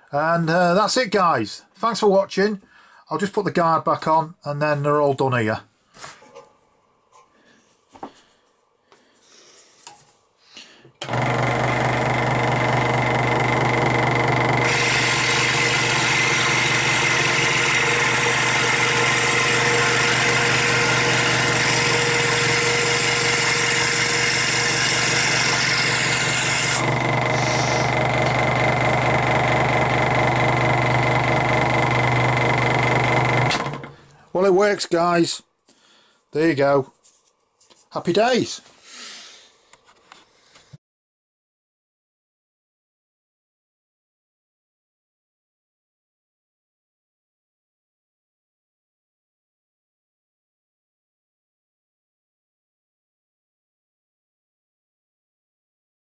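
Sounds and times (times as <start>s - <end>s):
scroll saw humming: 11.0s - 34.0s
saw blade rasping through wood: 11.1s - 33.8s.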